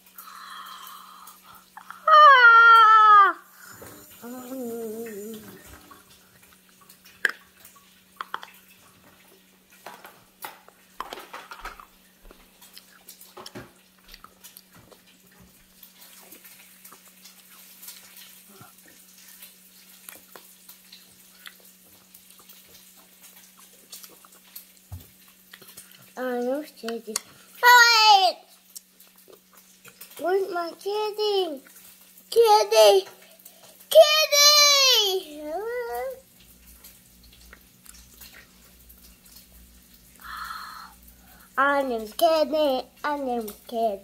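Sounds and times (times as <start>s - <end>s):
wet mouth clicks and smacks: 8.2s - 8.6s.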